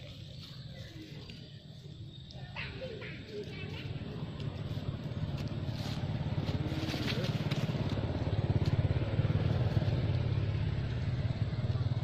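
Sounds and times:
small engine pulsing: 0:03.3 - 0:12.0.

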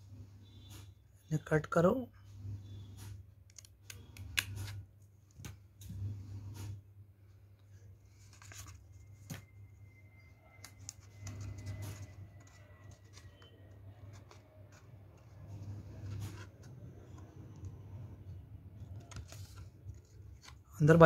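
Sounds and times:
card rustling: 0:07.8 - 0:21.0.

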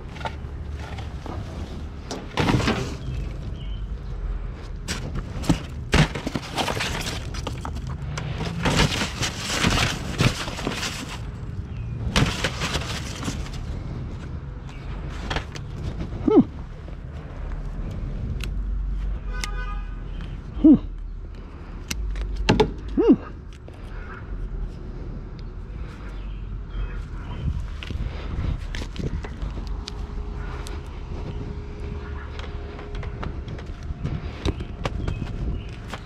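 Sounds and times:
scrap clattering: 0:00.0 - 0:03.4, 0:04.8 - 0:13.9.

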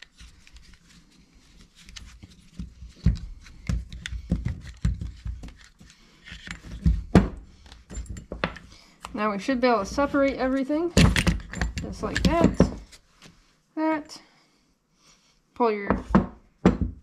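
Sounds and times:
metal tools clicking and knocking: 0:07.6 - 0:08.7, 0:10.0 - 0:13.0.

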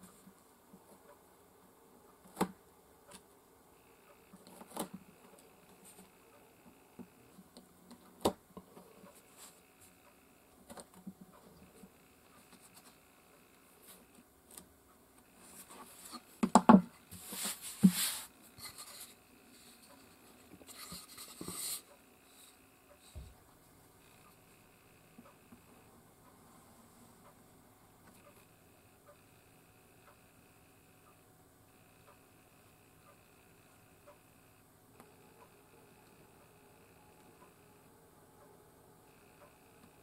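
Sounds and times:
soft rubbing: 0:17.0 - 0:23.2.

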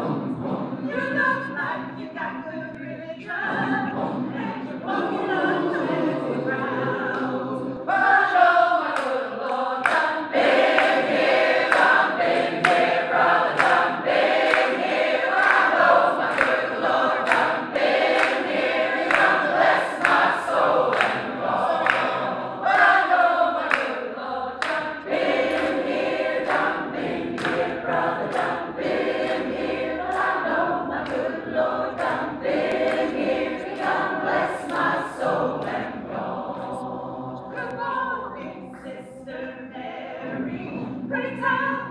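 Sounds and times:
choir singing gospel: 0:00.0 - 0:41.9
hands clapping on the beat: 0:08.9 - 0:24.0, 0:24.6 - 0:35.9.

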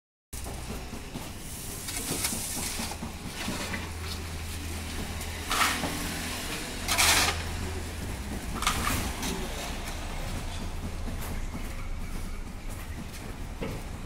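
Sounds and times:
concrete mixer humming: 0:00.4 - 0:14.0
loud scraping rushes: 0:01.9 - 0:07.9.

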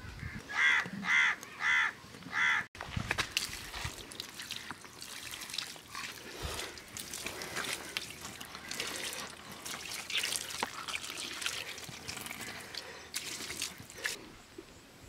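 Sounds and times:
water pouring and splashing: 0:02.8 - 0:14.2.

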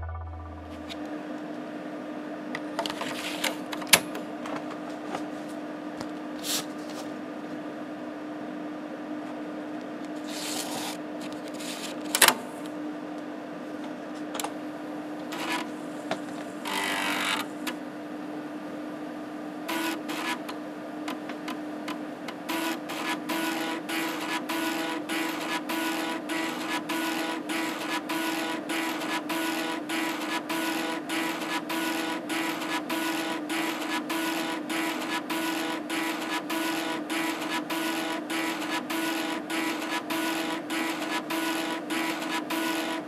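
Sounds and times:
computer hum: 0:00.0 - 0:01.0.

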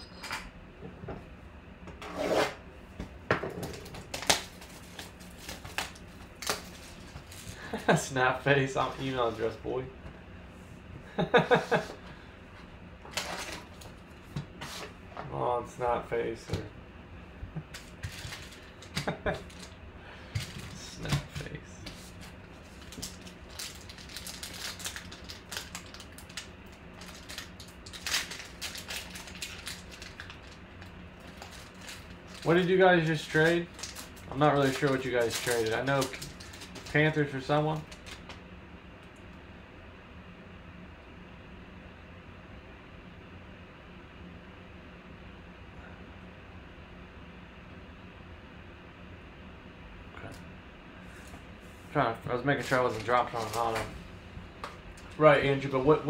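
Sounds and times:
foil wrapper crinkling and tearing: 0:03.7 - 0:07.8, 0:17.7 - 0:19.8, 0:21.9 - 0:38.4, 0:52.6 - 0:53.9
packaging snaps and clicks: 0:04.0 - 0:06.7.

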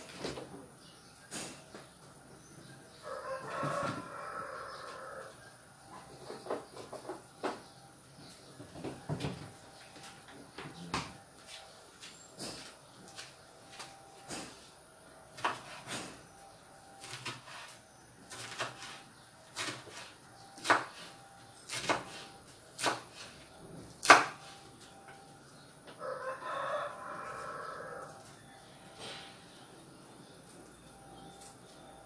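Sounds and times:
rooster crowing: 0:02.9 - 0:05.6, 0:25.9 - 0:28.9.

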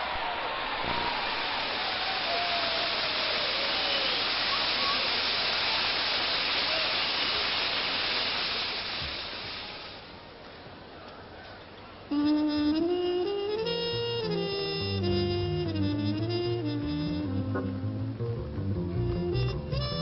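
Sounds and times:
shouts: 0:00.0 - 0:05.2
crowd applauding and cheering: 0:00.0 - 0:07.0.

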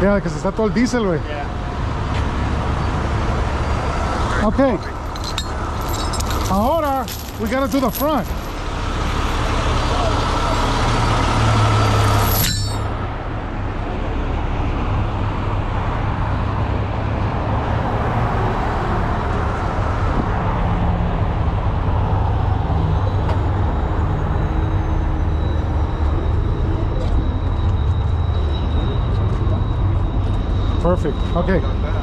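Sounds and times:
truck engine running: 0:00.0 - 0:17.4
faint high whine: 0:24.1 - 0:32.0.

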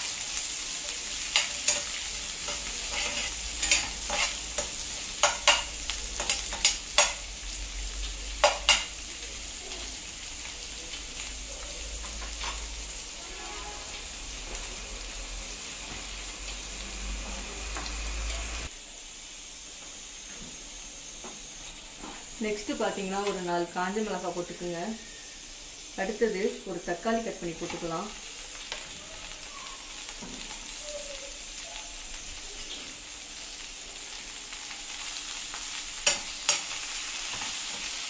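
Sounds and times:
shallots sizzling in oil: 0:00.0 - 0:38.0
metal spatula scraping pan: 0:01.3 - 0:05.6.

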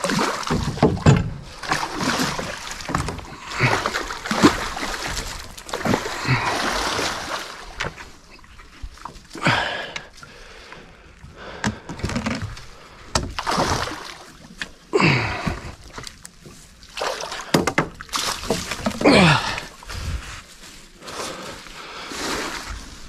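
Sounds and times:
water splashing and sloshing: 0:00.0 - 0:23.0
fish thrashing in a net: 0:01.6 - 0:07.8, 0:13.4 - 0:14.3.

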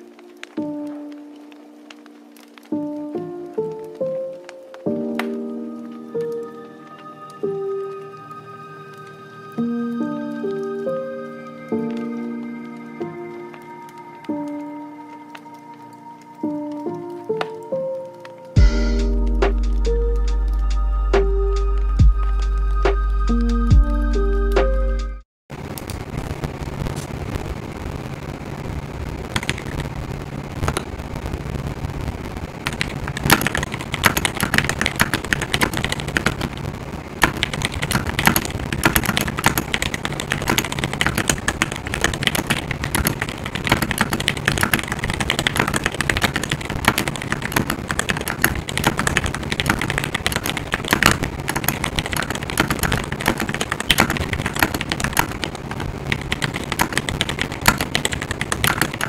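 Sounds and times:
mechanical keyboard typing: 0:32.7 - 0:36.6, 0:37.2 - 0:59.0.

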